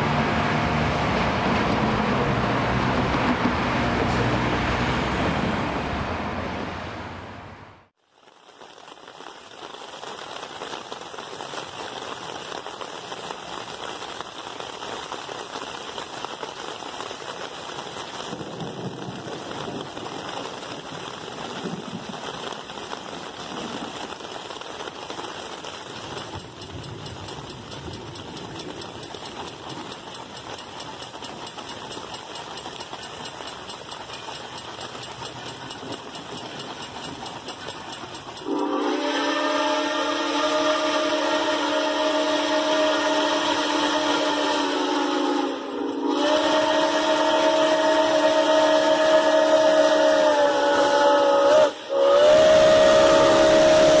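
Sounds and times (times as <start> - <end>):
steam locomotive running: 0.0 - 6.9, 24.8 - 54.0.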